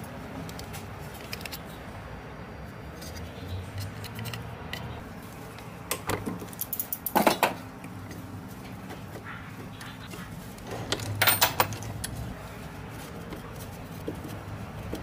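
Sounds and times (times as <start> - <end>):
sharp metallic clicks and scrapes: 0.4 - 1.8, 2.9 - 12.4.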